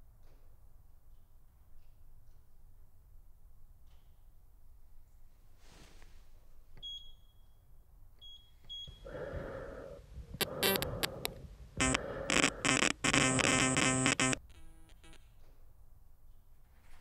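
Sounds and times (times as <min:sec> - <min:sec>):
static hiss: 0:09.0 - 0:15.2
glitchy crackling bursts: 0:09.1 - 0:15.2
high electronic beeps: 0:11.8 - 0:15.2.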